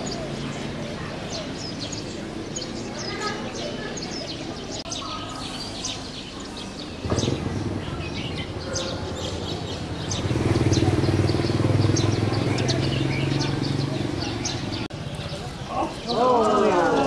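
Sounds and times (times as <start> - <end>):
small birds chirping: 0.0 - 17.0
vehicle engine: 6.1 - 16.5.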